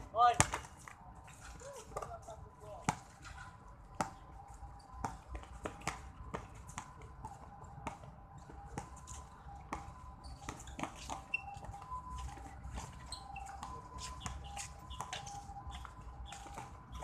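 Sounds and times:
basketball bouncing on concrete: 3.9 - 4.2.

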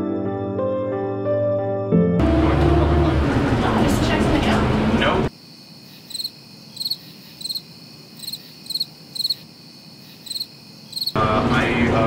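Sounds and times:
cricket chirps: 5.3 - 11.2.

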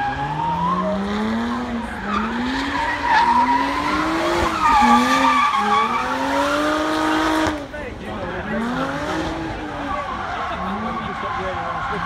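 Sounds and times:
tyres squealing: 0.0 - 7.4
car engine revving: 0.0 - 12.0.

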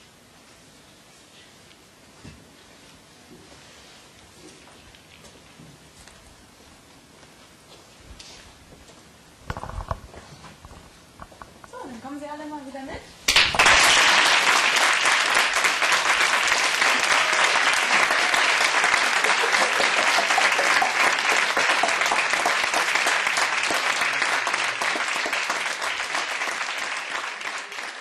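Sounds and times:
audience applauding: 13.3 - 28.0.

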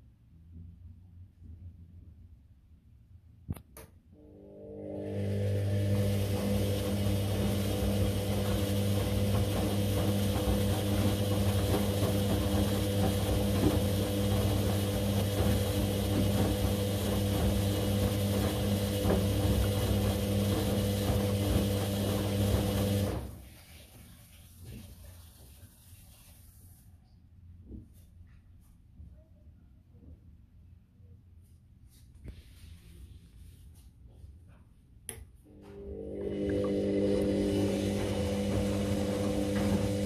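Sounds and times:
washing machine motor hum: 4.2 - 23.6, 35.4 - 40.0
water and laundry sloshing: 5.7 - 25.6, 35.8 - 40.0.

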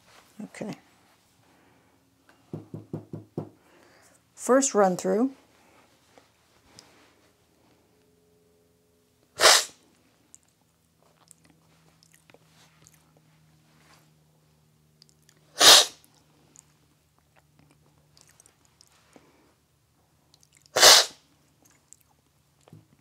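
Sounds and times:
loud coffee slurps: 20.8 - 21.1.

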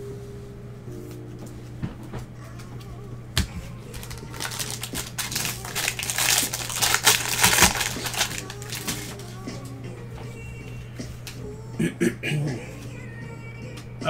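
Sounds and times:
foil wrapper crinkling: 3.5 - 9.4.

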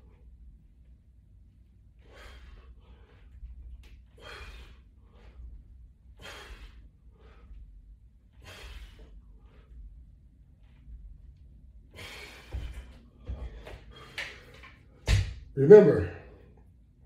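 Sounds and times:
man breathing hard: 1.9 - 10.1, 11.8 - 15.0.

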